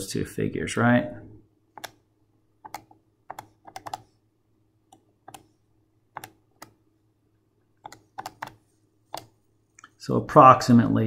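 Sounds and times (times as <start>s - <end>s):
calculator keys clicking: 1.8s - 2.0s, 2.6s - 4.1s, 6.2s - 6.8s, 7.8s - 9.4s.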